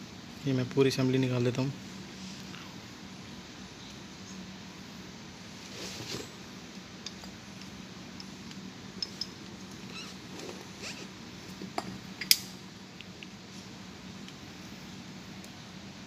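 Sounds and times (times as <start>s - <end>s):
faint steady hum: 0.0s - 16.0s
metal parts clicking and clinking: 7.0s - 10.0s.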